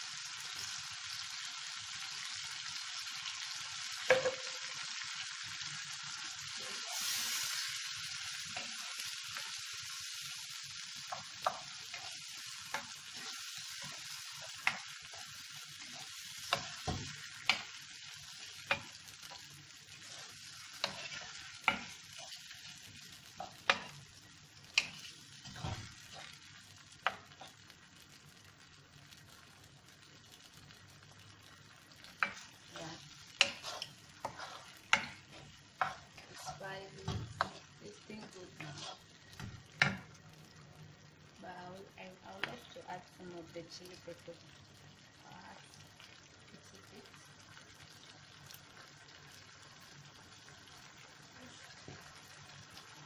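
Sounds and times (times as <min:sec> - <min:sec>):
vegetables sizzling in frying pan: 0:00.0 - 0:53.0
wooden spoon knocking pan: 0:04.0 - 0:04.8.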